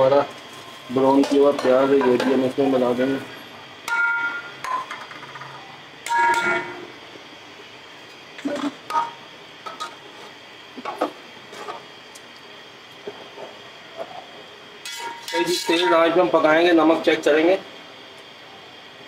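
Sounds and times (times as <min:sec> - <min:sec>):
steady hiss: 0:00.0 - 0:19.0
metal spoon clanging on pot: 0:06.1 - 0:06.8, 0:14.8 - 0:16.2.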